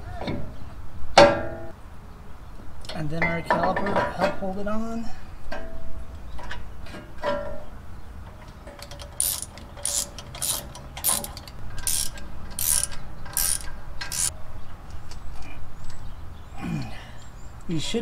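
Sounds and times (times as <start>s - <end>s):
ratchet wrench clicking: 8.8s - 14.3s.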